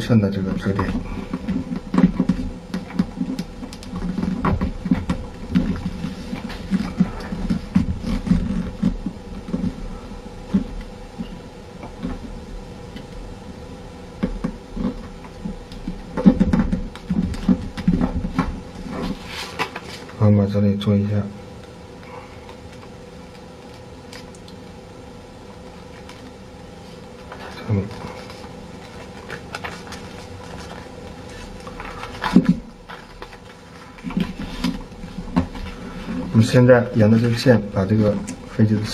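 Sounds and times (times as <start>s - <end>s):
paper folding and rustling: 0.4s - 11.3s, 14.4s - 20.2s, 25.7s - 38.9s.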